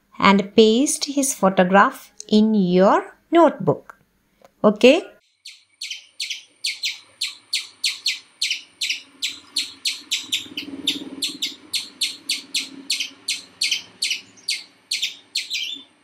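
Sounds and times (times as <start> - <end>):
rapid high-pitched chirping: 5.3 - 16.0.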